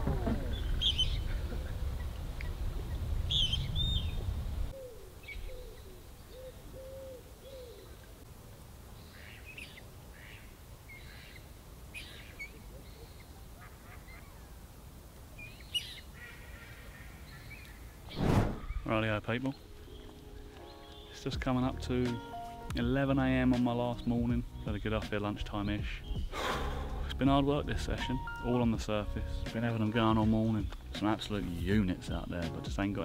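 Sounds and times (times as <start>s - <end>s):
waterbird low calls: 0.0s - 8.1s, 9.1s - 14.6s
small birds chirping: 0.1s - 8.3s, 8.9s - 27.3s, 28.1s - 33.0s.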